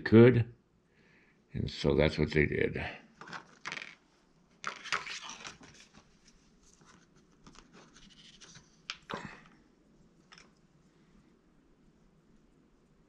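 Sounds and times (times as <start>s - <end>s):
faint handling rustles: 3.1s - 11.3s.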